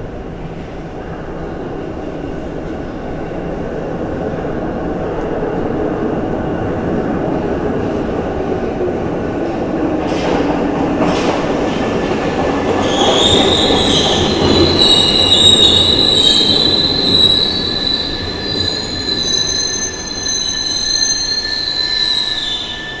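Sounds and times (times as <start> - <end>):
high metallic squeal of train: 12.6 - 23.0.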